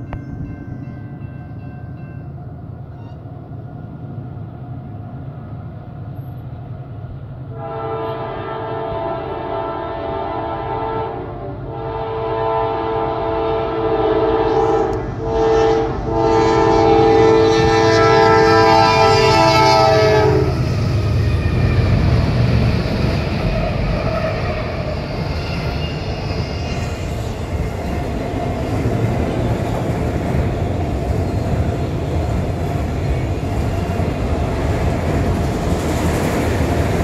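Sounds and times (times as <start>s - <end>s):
diesel train rumble: 0.0s - 37.0s
train air horn blasts: 7.5s - 20.8s.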